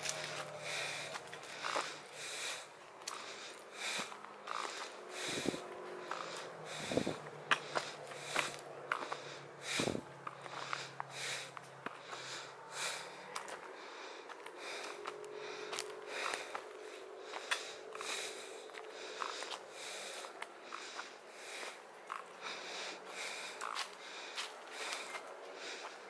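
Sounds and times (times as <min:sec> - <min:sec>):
footsteps on dry leaves: 0:00.0 - 0:02.4.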